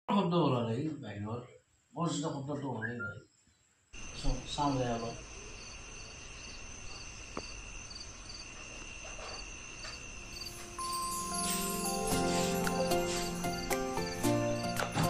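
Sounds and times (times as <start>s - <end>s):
crickets chirping: 2.1s - 15.0s
background music: 10.5s - 15.0s.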